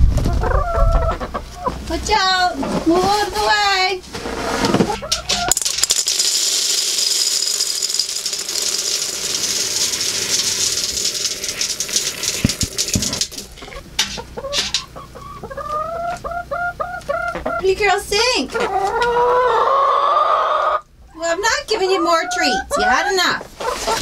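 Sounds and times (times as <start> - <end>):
hens clucking: 0.2 - 5.5, 13.3 - 24.0
feed pellets pouring into metal can: 5.5 - 13.5.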